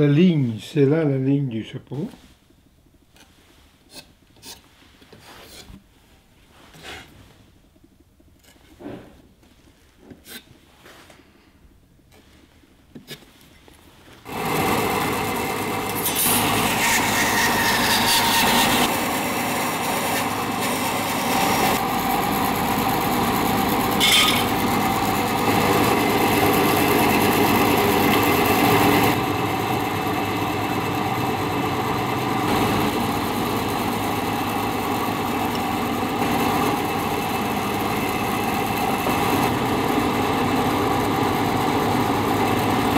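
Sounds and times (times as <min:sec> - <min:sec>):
hand tools on wood: 0:02.1 - 0:05.9, 0:06.5 - 0:11.4
woodworking power tool running: 0:14.2 - 0:42.9.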